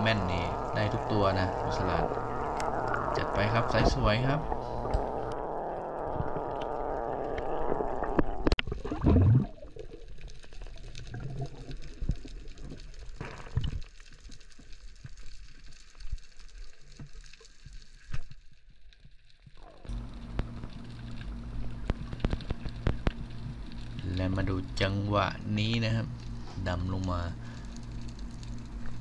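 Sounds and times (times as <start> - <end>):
underwater rush of water: 0.0 - 17.5
gurgling water: 0.0 - 17.7, 19.5 - 29.0.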